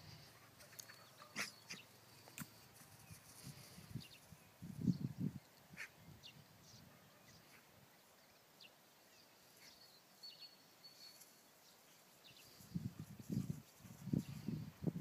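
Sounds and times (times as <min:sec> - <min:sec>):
faint bird chirps: 0:03.0 - 0:13.5.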